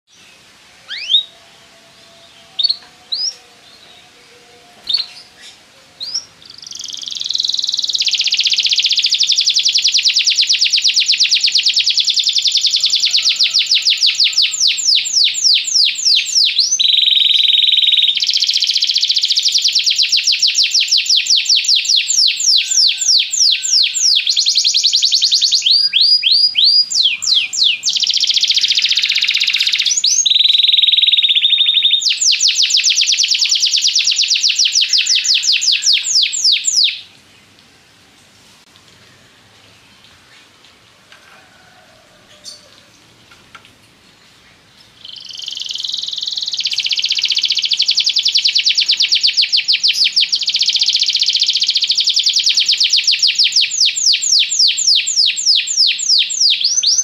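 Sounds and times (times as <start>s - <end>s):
canary singing trills: 0.9s - 37.1s, 44.9s - 57.0s.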